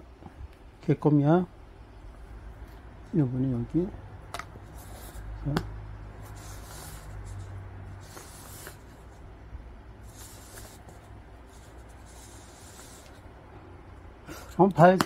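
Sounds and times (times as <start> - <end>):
paper cups scraping on fabric mat: 4.6 - 9.2, 10.0 - 13.3.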